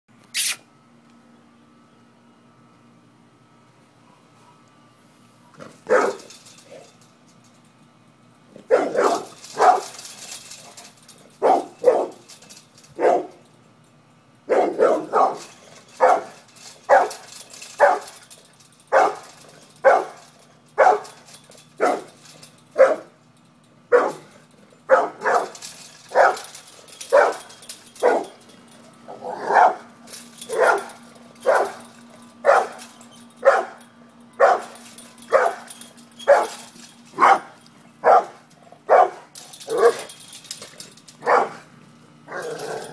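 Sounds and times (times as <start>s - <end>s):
dog barking: 5.4s - 6.3s, 8.7s - 10.0s, 11.4s - 12.1s, 13.0s - 13.3s, 14.5s - 17.2s, 18.9s - 19.2s, 19.8s - 20.2s, 20.8s - 21.1s, 22.8s - 23.1s, 23.9s - 24.3s, 24.9s - 26.4s, 27.1s - 27.4s, 28.0s - 28.3s, 29.4s - 29.8s, 30.5s - 31.8s, 32.4s - 32.8s, 33.4s - 33.8s, 34.4s - 35.7s, 36.3s - 36.6s, 37.2s - 40.1s, 41.2s - 41.6s.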